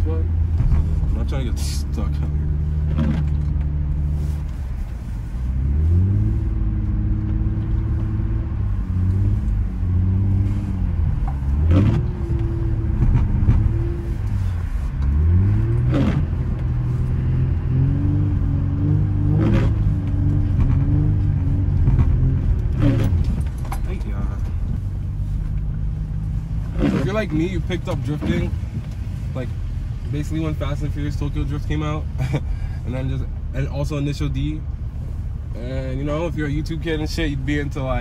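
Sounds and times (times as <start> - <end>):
car engine revving: 0.0 - 38.0.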